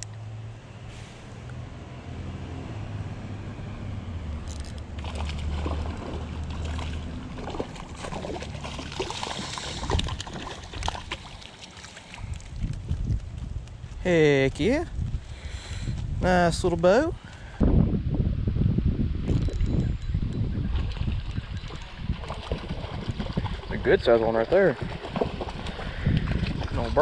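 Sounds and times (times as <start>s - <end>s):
fish splashing at water surface: 5.0s - 12.6s.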